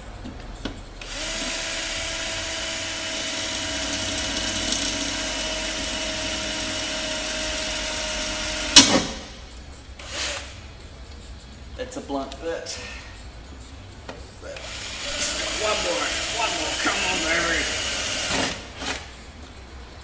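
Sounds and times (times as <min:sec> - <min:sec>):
cordless drill drilling metal: 0:01.0 - 0:08.8, 0:14.6 - 0:18.9.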